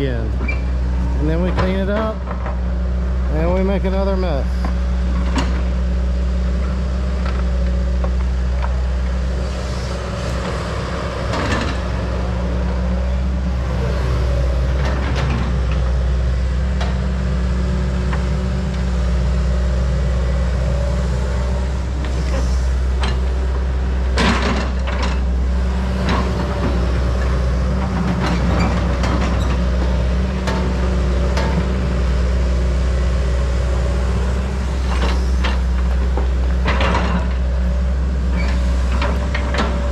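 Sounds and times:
excavator diesel engine: 0.0 - 39.9.

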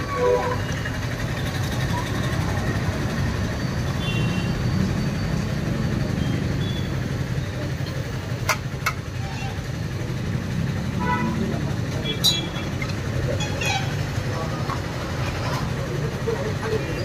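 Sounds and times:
low rumble of street traffic: 0.0 - 17.0.

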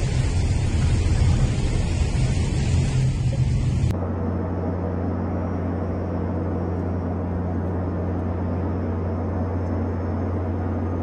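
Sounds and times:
cabin air rushing: 0.0 - 4.0
airliner engines droning: 0.0 - 11.0.

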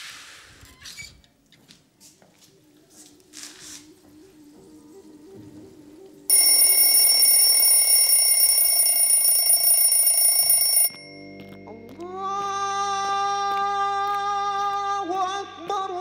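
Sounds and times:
electric bell ringing: 6.3 - 11.8.

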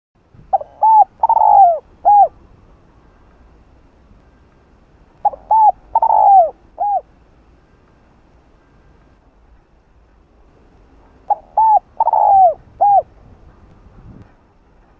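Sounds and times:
dove cooing: 0.5 - 2.4, 5.2 - 7.1, 11.3 - 13.1.

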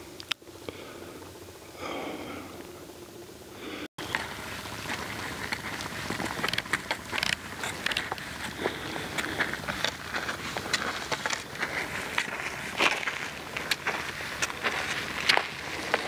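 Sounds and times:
footsteps crunching on scree: 4.0 - 16.0.

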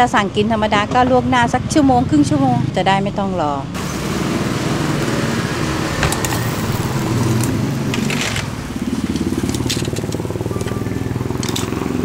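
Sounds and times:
small engine idling: 3.9 - 12.0.

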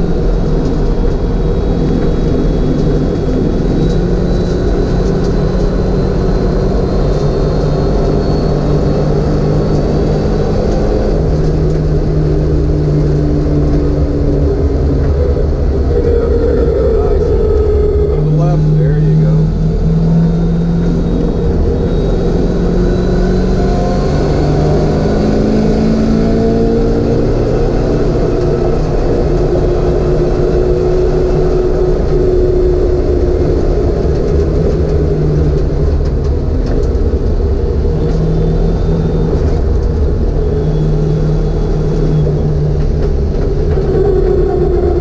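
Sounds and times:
car engine accelerating: 0.0 - 45.0.

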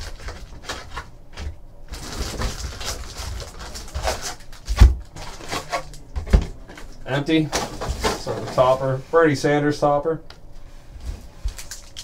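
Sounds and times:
foil packs crinkling and rustling: 0.0 - 6.1, 11.4 - 12.0.

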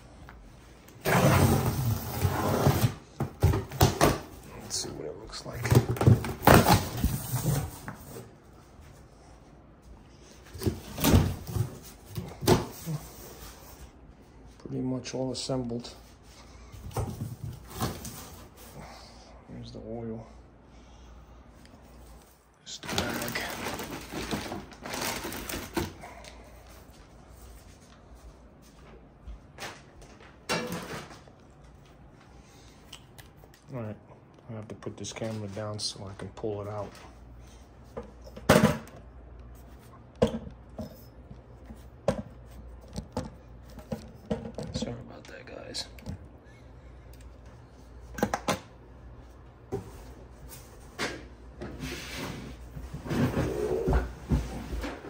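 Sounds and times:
cardboard rustling: 22.8 - 26.0.

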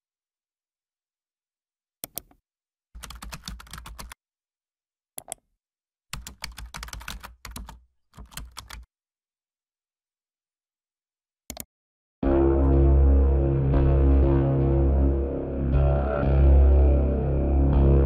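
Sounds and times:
computer keyboard typing: 3.0 - 4.2, 6.1 - 8.9.

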